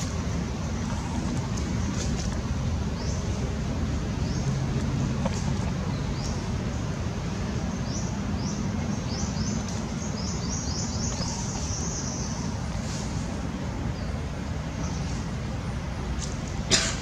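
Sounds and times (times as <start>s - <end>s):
steady low rumble: 0.0s - 17.0s
bird chirping: 7.6s - 13.0s.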